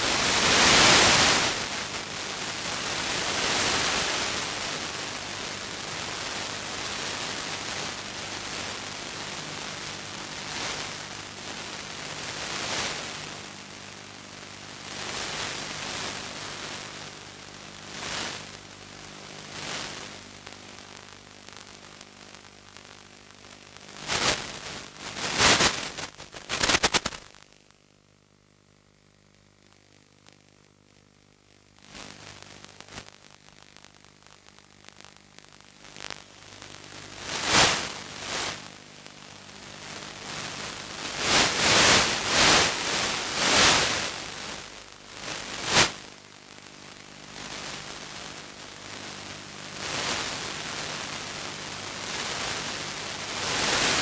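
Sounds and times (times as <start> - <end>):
loud noise bursts: 0.0 - 4.8, 24.0 - 27.4, 35.8 - 46.2, 51.7 - 54.0
radio static hiss: 0.0 - 54.0.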